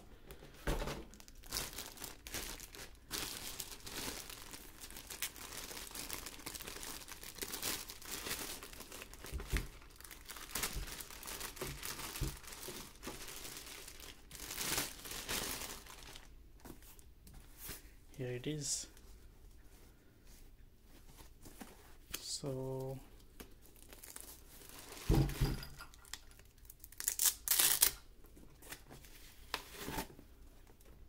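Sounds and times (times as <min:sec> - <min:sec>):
plastic bag crinkling: 0:01.1 - 0:16.3, 0:23.5 - 0:25.2, 0:25.8 - 0:28.0.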